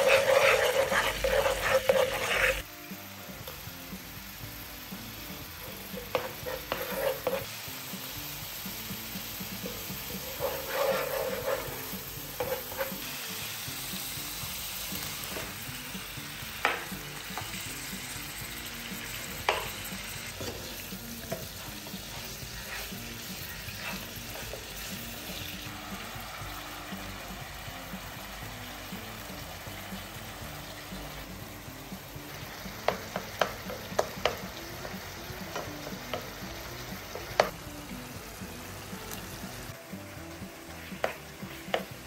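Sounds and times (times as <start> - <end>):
wooden spoon scraping a pan: 0.0 - 2.6, 6.0 - 7.5, 10.2 - 13.1, 20.4 - 25.6
spices sizzling in hot oil: 0.0 - 42.0.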